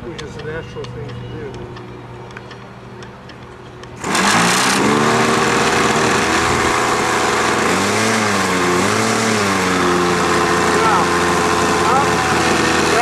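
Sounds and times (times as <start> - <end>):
model airplane engine buzzing: 3.8 - 13.0.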